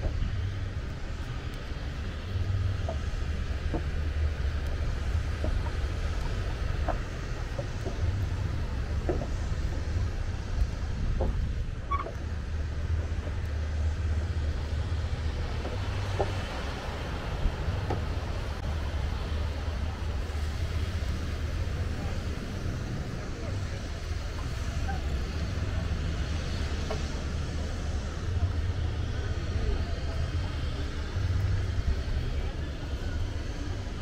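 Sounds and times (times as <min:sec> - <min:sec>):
wind rumble on microphone: 0:00.0 - 0:34.0.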